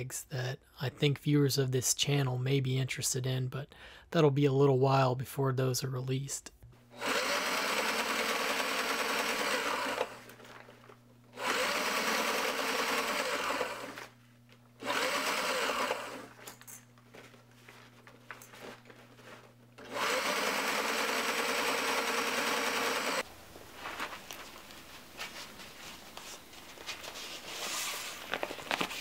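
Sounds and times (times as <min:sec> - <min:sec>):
sewing machine stitching: 0:07.0 - 0:10.3, 0:11.4 - 0:14.1, 0:14.8 - 0:16.5, 0:19.8 - 0:23.2.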